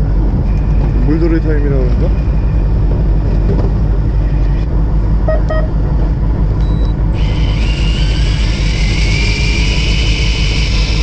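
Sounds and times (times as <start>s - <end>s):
boat engine rumbling: 0.0s - 11.0s
steady rising whine: 2.0s - 11.0s
short beeps: 5.2s - 5.8s, 6.6s - 7.0s.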